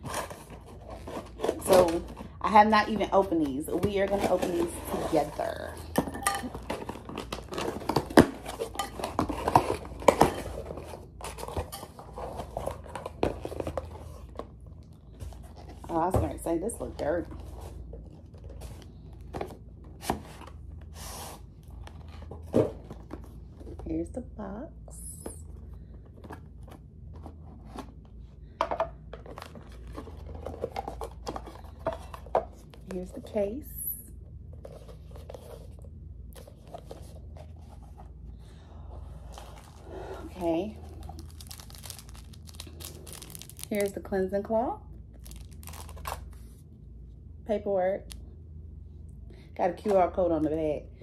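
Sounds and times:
packaging rustling: 0.0s - 16.0s, 26.1s - 33.2s, 39.2s - 44.0s, 45.1s - 46.5s.

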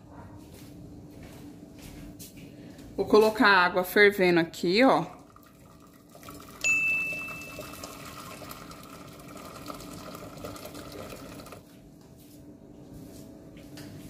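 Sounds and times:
water pouring into a pot: 5.0s - 11.6s.

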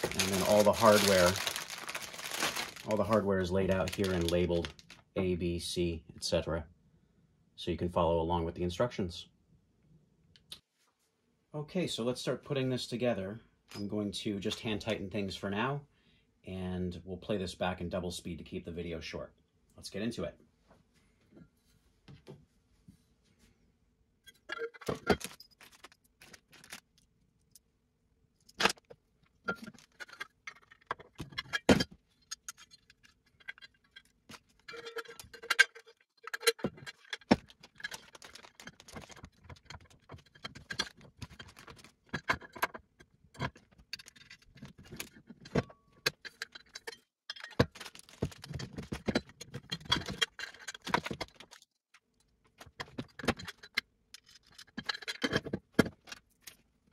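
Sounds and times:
metal parts clinking on wood: 0.0s - 3.1s, 24.3s - 26.8s, 29.5s - 42.8s, 43.4s - 51.7s, 52.6s - 56.6s.

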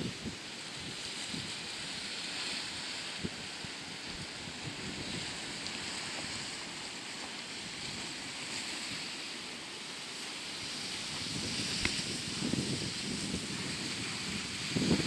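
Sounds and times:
wind buffeting microphone: 0.0s - 1.8s, 3.2s - 6.6s, 10.6s - 15.0s
small waves breaking over rocks: 0.0s - 15.0s.

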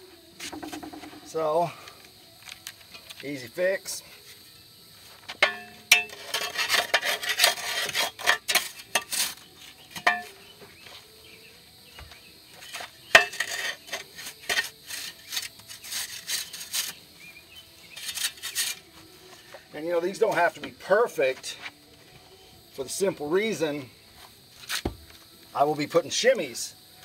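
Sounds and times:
hoe scraping and chopping soil: 5.1s - 10.9s, 12.5s - 20.9s.

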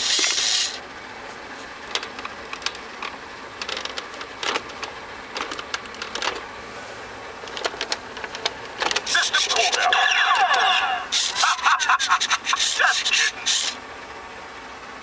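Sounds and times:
toy hissing sound effect: 0.0s - 0.8s, 13.4s - 13.8s
plastic toy clicks and rattles: 1.9s - 6.4s.

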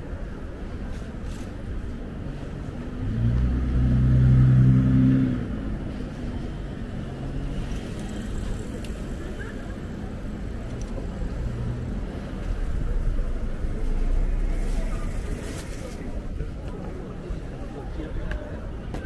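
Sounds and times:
city street hum: 0.0s - 19.0s
vehicle engine passing: 2.9s - 15.4s.

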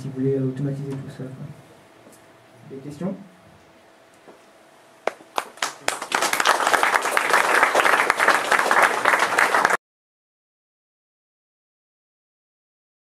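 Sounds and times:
audience applauding: 5.0s - 9.8s.

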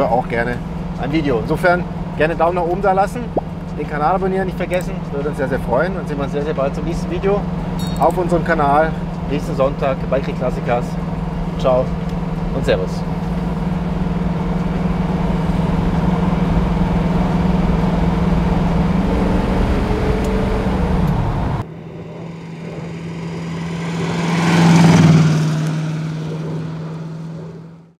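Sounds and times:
car engine drone in cabin: 0.0s - 28.0s
road rumble: 0.0s - 28.0s
thinner engine sound: 0.0s - 28.0s.

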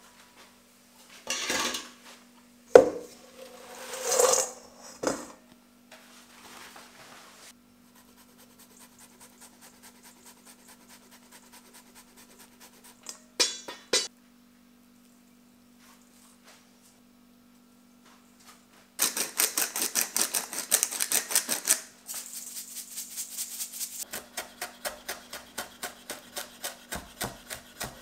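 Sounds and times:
metal basket and bowl clattering: 1.3s - 2.0s
cheese grating: 19.0s - 28.0s.

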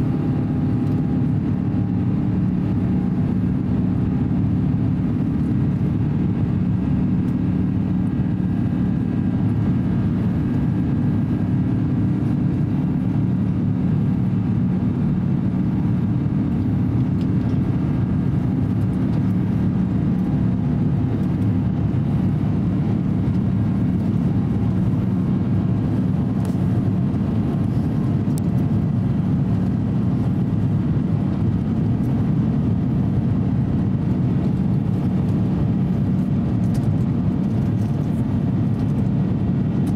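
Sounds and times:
airplane cabin drone: 0.0s - 39.9s.

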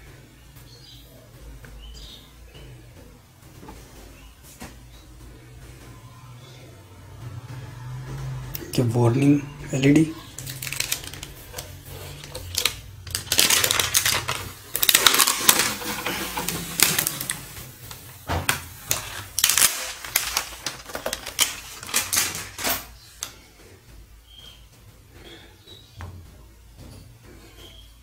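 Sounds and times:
plastic film crinkling: 9.8s - 23.4s.

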